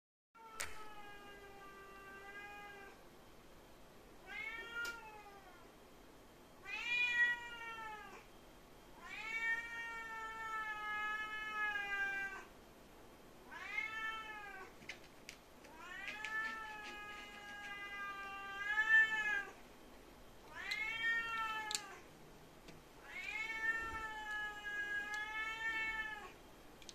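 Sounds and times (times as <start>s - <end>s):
cat meowing: 0.4s - 3.0s, 4.2s - 5.6s, 6.6s - 8.2s, 9.0s - 12.5s, 13.5s - 14.7s, 15.7s - 19.6s, 20.5s - 22.1s, 23.0s - 26.4s.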